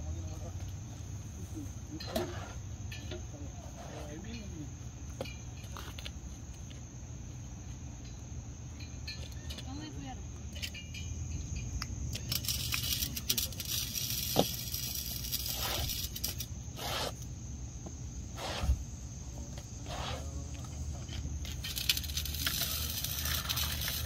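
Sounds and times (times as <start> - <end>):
insects droning: 0.0 - 24.0
rustling and scraping: 0.4 - 6.8, 12.1 - 24.0.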